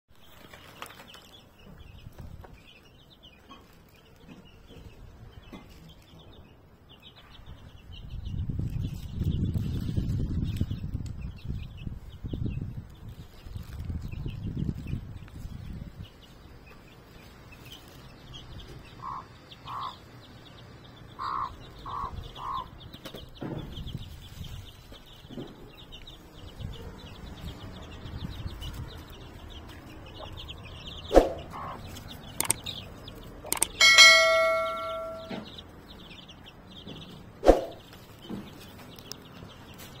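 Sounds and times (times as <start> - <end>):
chicks cheeping: 0.2 - 40.0
hen clucking: 18.9 - 20.1, 21.2 - 22.8, 31.1 - 32.7
sharp knocks: 33.5 - 35.5
metal object struck ringing: 33.8 - 35.5.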